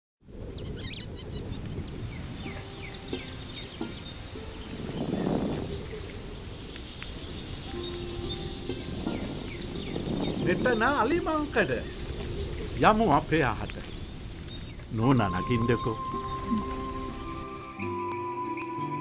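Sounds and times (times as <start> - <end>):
small birds chirping: 0.4 - 19.0
insects shrilling: 0.5 - 19.0
faint low sustained notes: 7.6 - 17.8.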